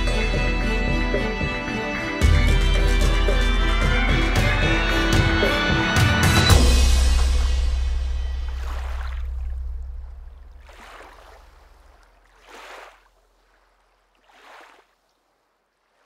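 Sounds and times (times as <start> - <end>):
sea waves washing: 0.0 - 15.0
deep bass note: 6.2 - 10.7.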